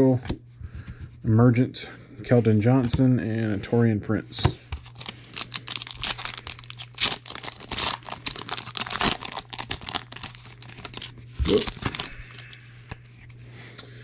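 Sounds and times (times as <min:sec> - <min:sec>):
foil wrapper tearing and crinkling: 0:04.8 - 0:12.6.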